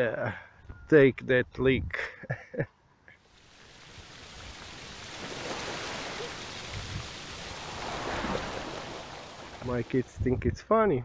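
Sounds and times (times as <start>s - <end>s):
cow urinating onto straw: 3.2s - 10.1s.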